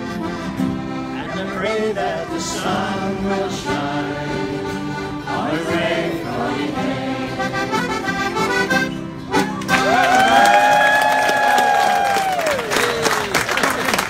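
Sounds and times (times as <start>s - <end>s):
accordion playing folk tune: 0.0s - 10.0s
people singing along: 1.4s - 8.2s.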